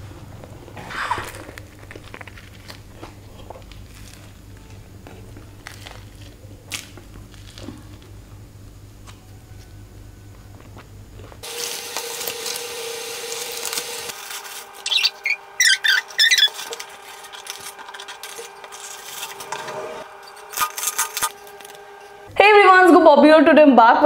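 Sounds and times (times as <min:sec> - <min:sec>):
paper packaging rustling: 0:00.9 - 0:08.0, 0:11.5 - 0:22.2.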